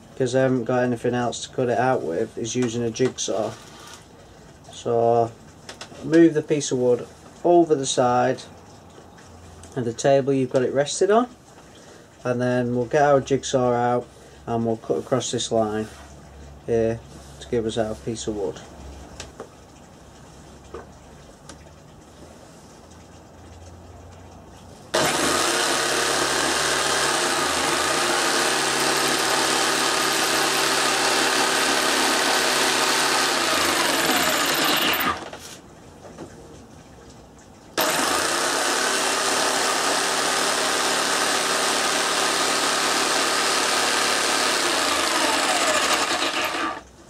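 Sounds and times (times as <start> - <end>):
electric jigsaw cutting wood: 25.0 - 35.3, 37.8 - 46.8.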